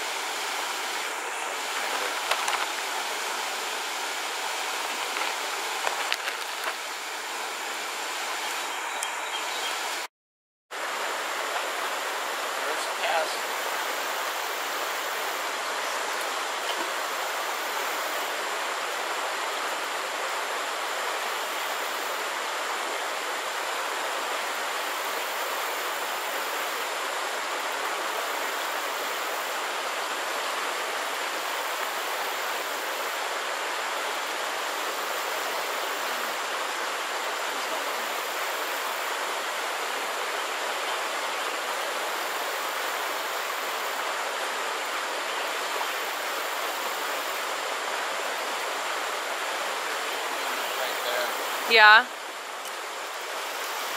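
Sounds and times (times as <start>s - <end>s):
stream water rushing: 0.0s - 10.1s, 10.7s - 53.9s.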